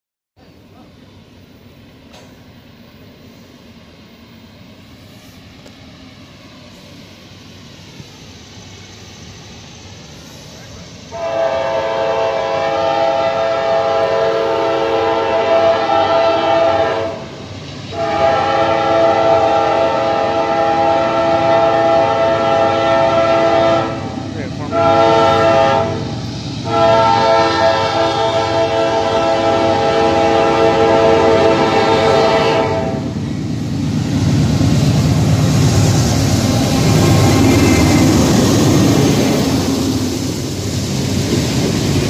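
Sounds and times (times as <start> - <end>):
locomotive rumble: 0.4 - 42.0
locomotive air horn blasts: 11.1 - 17.2, 17.9 - 33.1.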